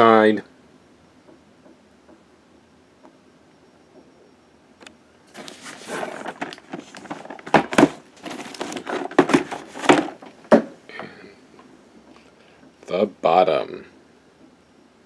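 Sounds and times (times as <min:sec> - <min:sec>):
cardboard box rubbing and scraping: 0:05.3 - 0:10.0
cardboard box knocks: 0:09.0 - 0:10.8.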